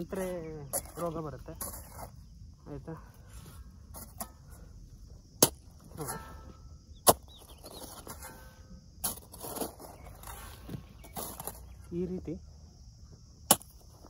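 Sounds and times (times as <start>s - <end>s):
hoe chopping into dry soil: 5.3s - 11.6s, 13.4s - 14.0s.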